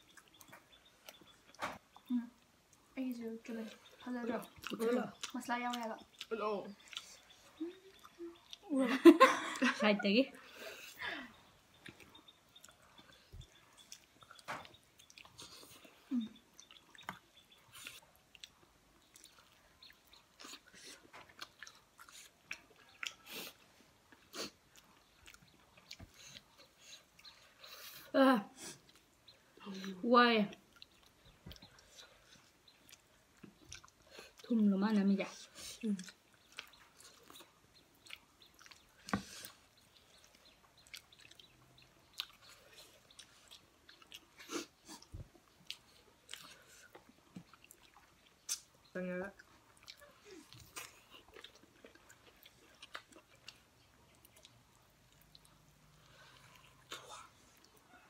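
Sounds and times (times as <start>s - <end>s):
people chewing food: 0.0s - 58.0s
wet mouth smacks: 48.4s - 48.7s.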